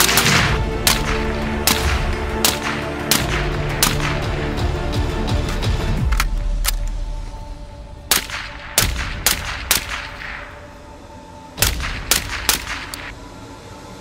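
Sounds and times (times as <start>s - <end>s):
suppressed rifle gunshots: 0.0s - 4.4s, 8.1s - 10.8s, 11.6s - 13.1s.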